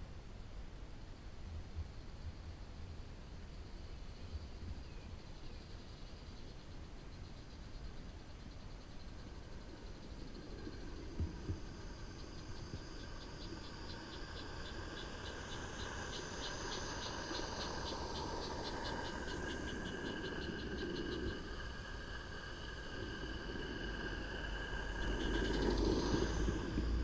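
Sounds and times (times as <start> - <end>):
steam hiss: 9.3 - 27.0
wheels rumbling on track: 9.3 - 27.0.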